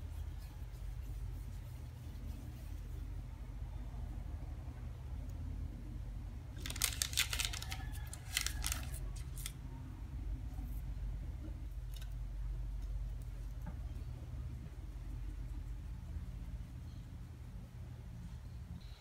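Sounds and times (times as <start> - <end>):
baking paper crinkling: 6.5 - 9.6
low hum: 9.0 - 19.0.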